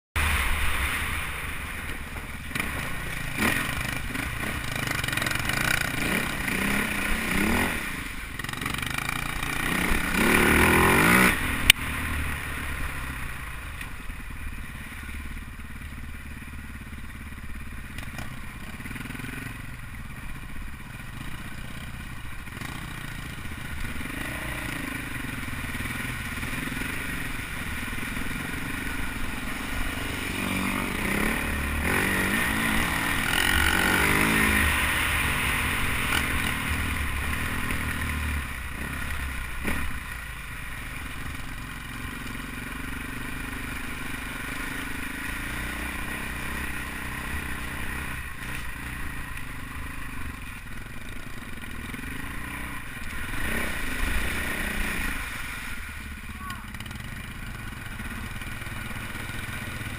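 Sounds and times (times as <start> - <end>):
dirt bike engine revving: 0.2 - 13.4, 16.5 - 59.9.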